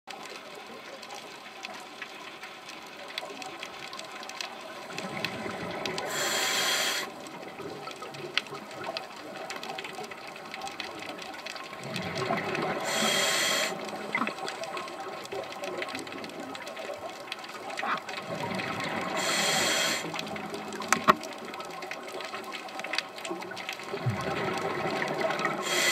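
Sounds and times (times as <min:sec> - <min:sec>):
faint crackle of clicks: 0:00.1 - 0:25.9
diver breathing through regulator: 0:06.0 - 0:07.1, 0:12.8 - 0:13.9, 0:19.2 - 0:20.2, 0:25.6 - 0:25.9
bubbly noise: 0:23.9 - 0:25.9.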